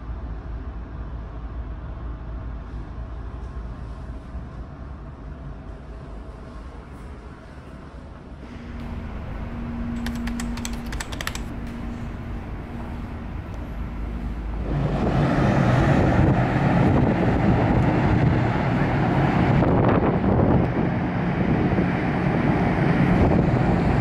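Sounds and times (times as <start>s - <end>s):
steady hum inside ferry: 0.0s - 24.0s
quick clicks: 9.9s - 11.8s
wind buffeting microphone: 11.5s - 24.0s.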